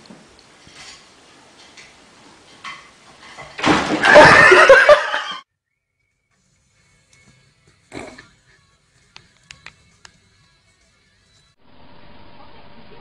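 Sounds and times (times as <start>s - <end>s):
cat falling onto tiled floor: 3.4s - 4.5s
loud human laughter: 4.0s - 5.4s.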